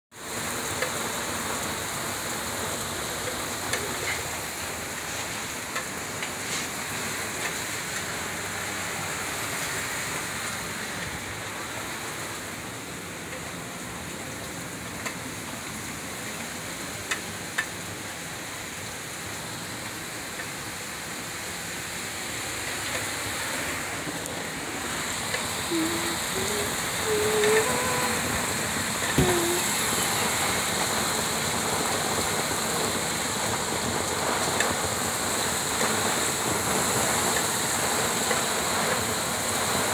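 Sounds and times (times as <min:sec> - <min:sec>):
heavy rain pouring: 0:00.1 - 0:39.9.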